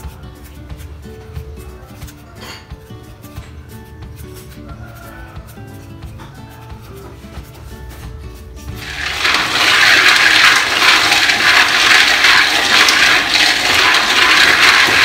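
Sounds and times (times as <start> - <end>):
faint background music: 0.0 - 15.0
peanuts sizzling in wok: 8.8 - 15.0.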